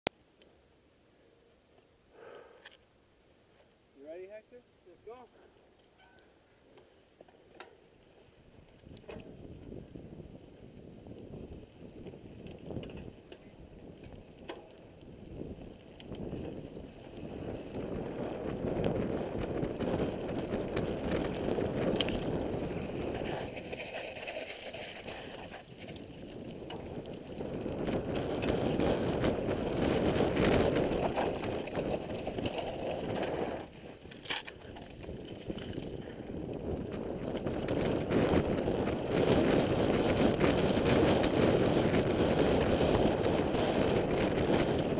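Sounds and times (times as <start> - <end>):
bike rattling: 5.8 - 44.9
wind on microphone: 8.8 - 44.9.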